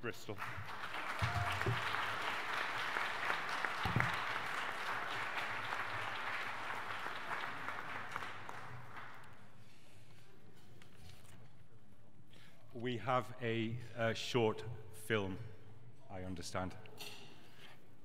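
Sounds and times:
audience applauding: 0:00.3 - 0:09.4.

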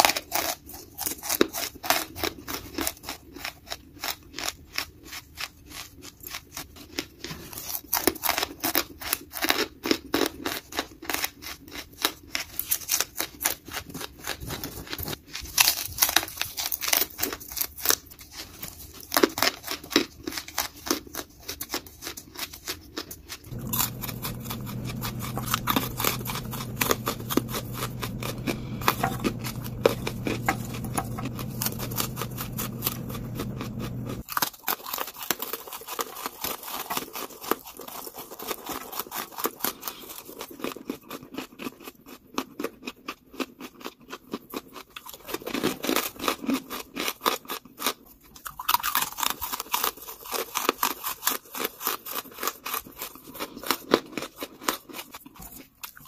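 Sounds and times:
charcoal crunching when chewed: 0:00.0 - 0:56.0
steady low hum: 0:23.5 - 0:34.2.

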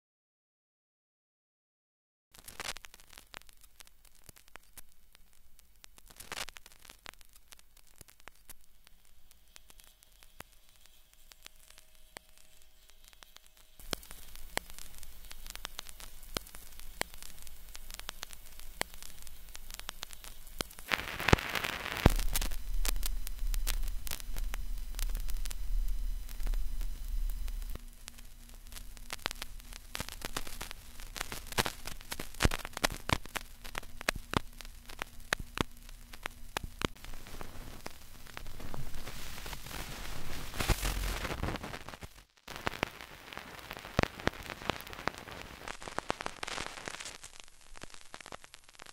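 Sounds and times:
crackling static hiss with clicks: 0:02.3 - 0:48.9
steady low hum: 0:04.8 - 0:42.3
low rumble: 0:22.1 - 0:30.0.

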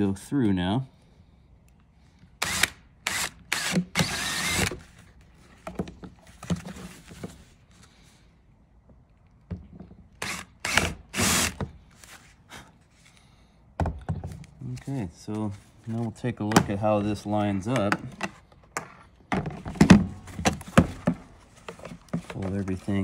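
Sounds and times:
cordless drill whirring: 0:02.4 - 0:05.0, 0:10.2 - 0:11.6.

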